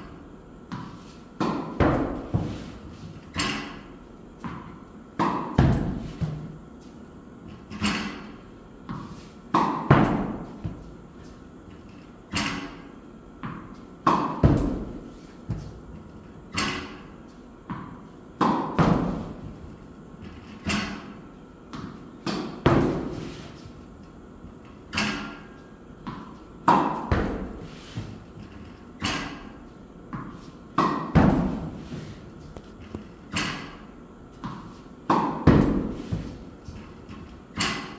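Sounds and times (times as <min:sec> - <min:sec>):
tennis ball bouncing on court: 0:00.7 - 0:02.7, 0:04.4 - 0:06.5, 0:08.9 - 0:10.9, 0:13.4 - 0:14.9, 0:17.7 - 0:19.3, 0:21.7 - 0:23.1, 0:26.0 - 0:27.5, 0:30.1 - 0:31.7, 0:32.6 - 0:36.3
racket hitting tennis ball: 0:00.7 - 0:06.9, 0:07.6 - 0:11.4, 0:12.3 - 0:15.8, 0:16.5 - 0:19.8, 0:20.6 - 0:23.8, 0:24.8 - 0:37.9.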